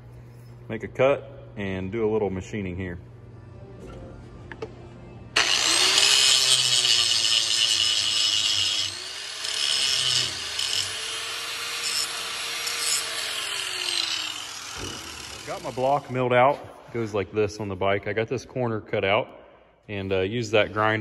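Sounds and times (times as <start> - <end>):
angle grinder grinding metal: 5.4 - 16.1.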